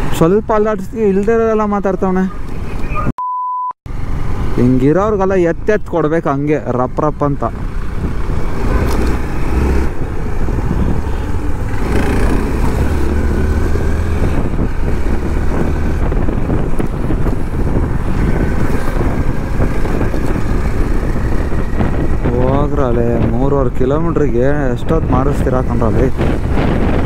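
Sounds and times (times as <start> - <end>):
rumble of traffic engines: 0.0 - 3.1, 3.9 - 27.0
motorcycle engine running: 7.5 - 23.4.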